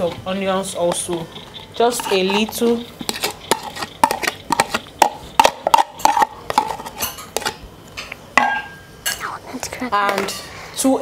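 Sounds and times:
metal spoon scraping plastic container: 0:00.0 - 0:07.6.

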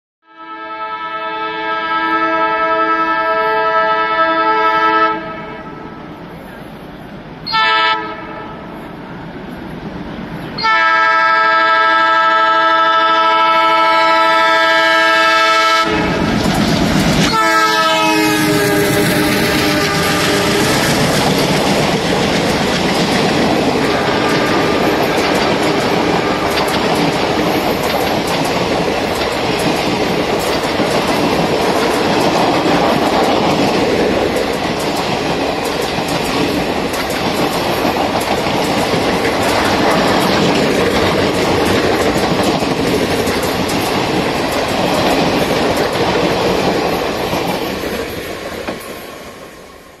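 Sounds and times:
locomotive horn: 0:00.2 - 0:06.0, 0:07.4 - 0:08.7, 0:10.6 - 0:16.3, 0:17.3 - 0:20.9, 0:23.9 - 0:26.7
train wheels clattering over rail joints: 0:16.0 - 0:49.1.

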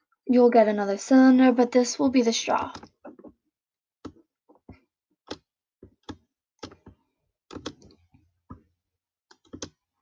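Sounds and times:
computer mouse clicks: 0:06.0 - 0:08.0, 0:09.3 - 0:09.8.

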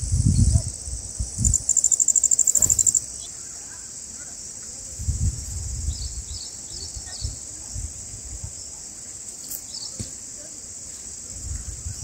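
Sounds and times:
insect chorus: 0:00.0 - 0:12.0
faint high chirps: 0:01.4 - 0:03.8.

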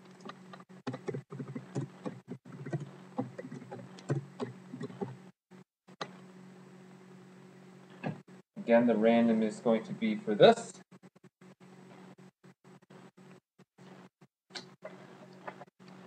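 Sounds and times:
keyboard typing: 0:00.2 - 0:05.2.

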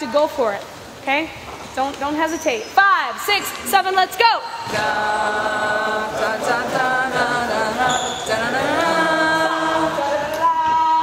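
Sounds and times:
voices singing long sliding notes: 0:04.6 - 0:11.0.

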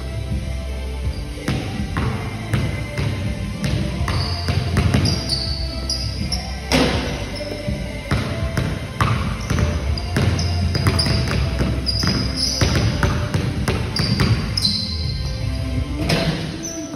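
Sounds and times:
basketball bouncing on concrete: 0:01.5 - 0:05.3, 0:08.1 - 0:14.8.

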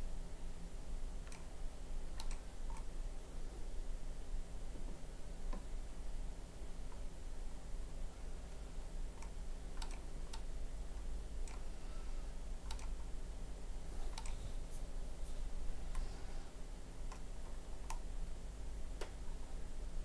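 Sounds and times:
low steady hum: 0:00.0 - 0:20.0
computer mouse clicks: 0:01.2 - 0:01.5, 0:02.2 - 0:02.9, 0:09.2 - 0:10.5, 0:11.4 - 0:11.7, 0:12.6 - 0:13.0, 0:14.1 - 0:14.4, 0:17.1 - 0:18.0.

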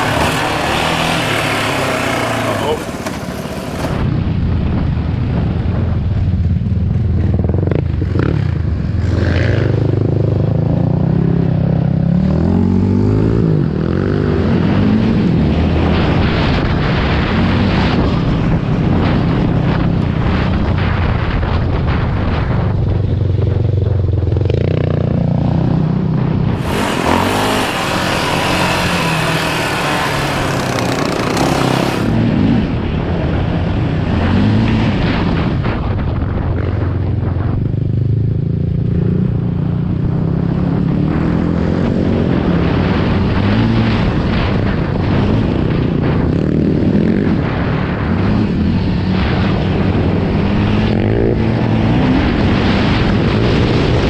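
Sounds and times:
off-road motorcycle engine revving: 0:00.0 - 0:04.1, 0:07.2 - 0:18.2, 0:23.4 - 0:32.8
wind and trail noise: 0:00.0 - 0:54.0.

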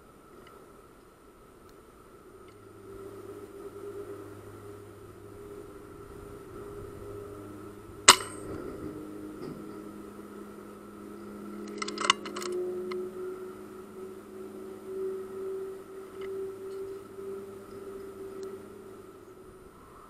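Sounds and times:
faint high whine: 0:00.0 - 0:20.0
metallic clicks: 0:11.6 - 0:13.0.

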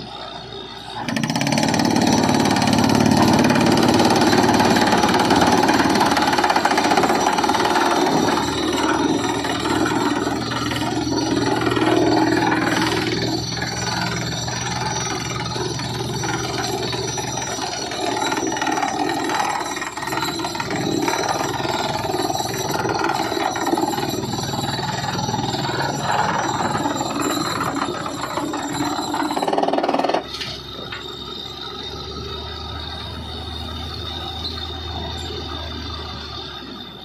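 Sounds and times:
engine running: 0:00.0 - 0:37.0
rapid drill hammering: 0:01.0 - 0:30.3.

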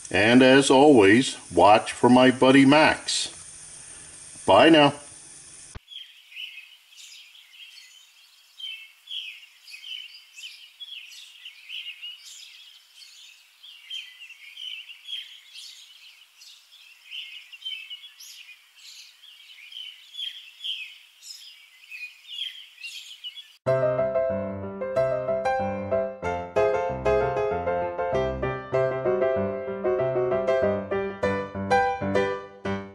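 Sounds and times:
birds chirping: 0:00.1 - 0:03.0, 0:05.7 - 0:23.6.

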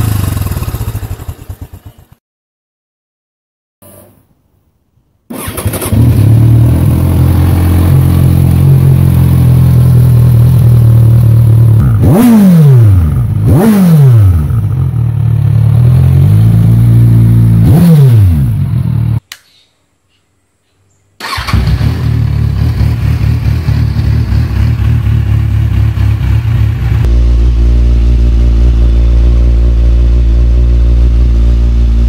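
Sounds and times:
motorcycle engine idling: 0:00.0 - 0:02.2, 0:06.6 - 0:12.1, 0:14.4 - 0:17.6, 0:21.2 - 0:32.0.

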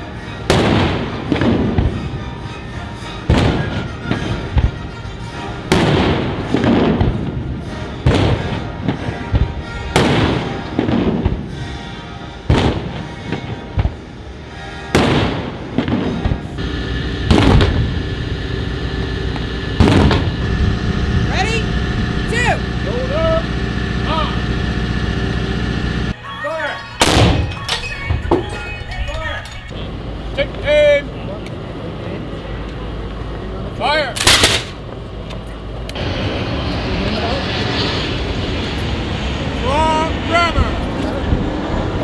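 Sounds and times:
cannon blasts with rolling echo: 0:00.5 - 0:02.0, 0:05.7 - 0:11.6, 0:12.5 - 0:14.0, 0:14.9 - 0:26.2.

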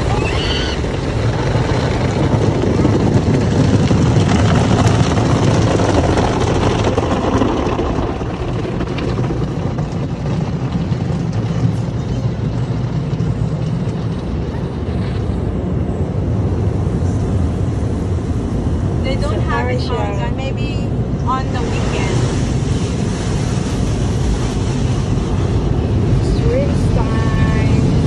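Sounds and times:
car wash water spray: 0:21.3 - 0:28.0.

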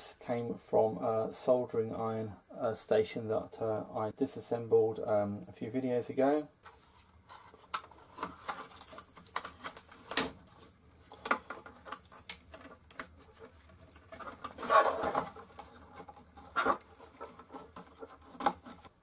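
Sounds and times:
plastic clatter: 0:07.4 - 0:18.9.

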